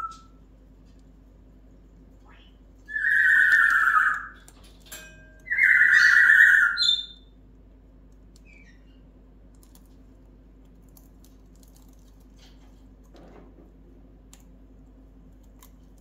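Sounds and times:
parrot whistled squawks: 0.0 - 0.3, 2.3 - 4.4, 5.5 - 7.2
parrot chirp: 2.2 - 4.5, 5.4 - 7.3, 8.4 - 9.0
parrot beak nibbling clicks: 15.3 - 16.0.

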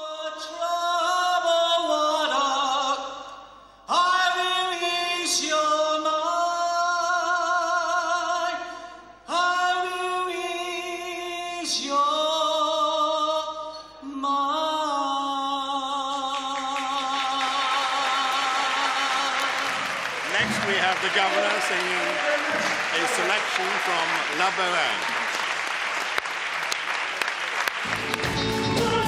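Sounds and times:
man singing into a microphone: 0.0 - 21.6, 28.6 - 29.0
applause: 16.3 - 29.0.

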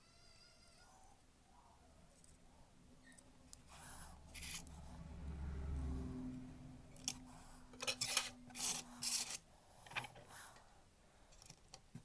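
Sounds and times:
faint steady hum: 0.0 - 12.0
small parts rustling and scraping: 3.0 - 4.8, 6.9 - 10.7, 11.3 - 12.0.

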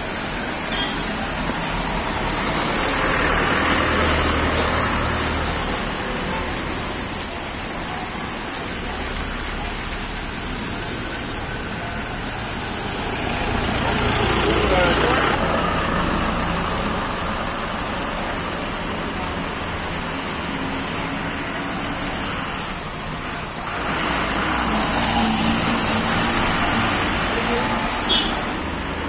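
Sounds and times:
cars passing on wet road: 0.0 - 29.0.

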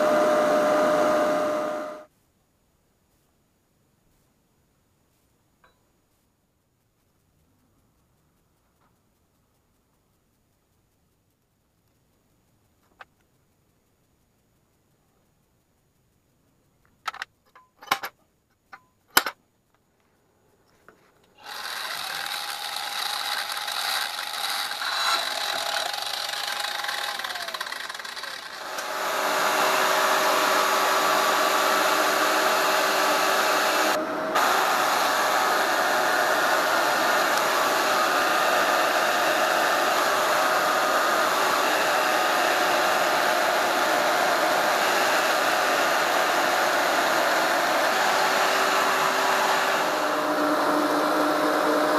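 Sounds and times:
band saw cutting sheet metal: 0.0 - 2.1, 21.4 - 51.9.

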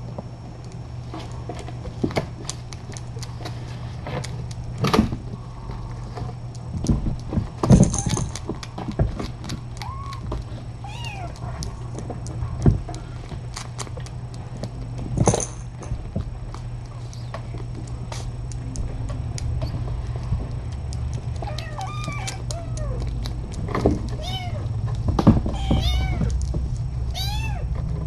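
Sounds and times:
steady low hum: 0.0 - 28.0
kittens clicking and knocking: 0.6 - 28.0
kitten mewing: 9.8 - 11.4, 21.4 - 23.2, 24.1 - 24.7, 25.5 - 26.3, 27.1 - 27.7.

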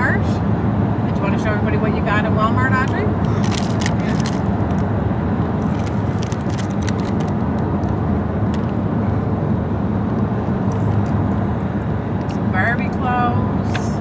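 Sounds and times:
road and engine noise in car: 0.0 - 14.0
foil chip bag crinkling: 3.4 - 4.5, 5.6 - 7.4.

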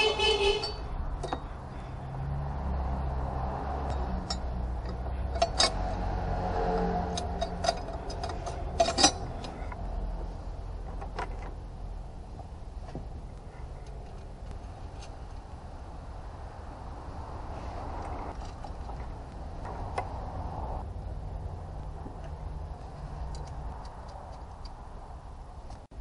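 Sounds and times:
metal pipe clinks and knocks: 0.6 - 1.5, 3.8 - 5.9, 7.0 - 9.8.

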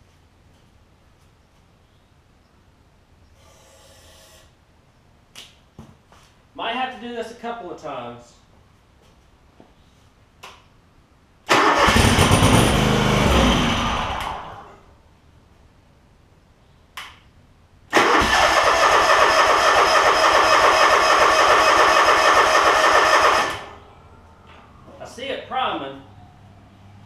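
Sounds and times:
lawn tractor engine cranking: 11.5 - 13.9, 17.9 - 23.8.

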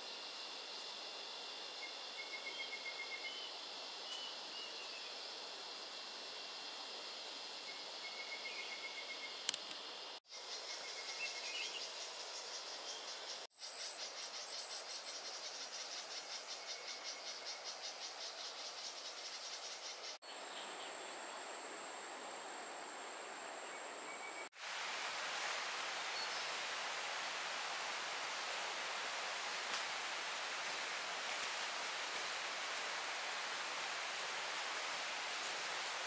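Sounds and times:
high insect trill: 0.0 - 36.0
insects chirping: 0.0 - 36.0
stream flowing: 24.6 - 36.0.

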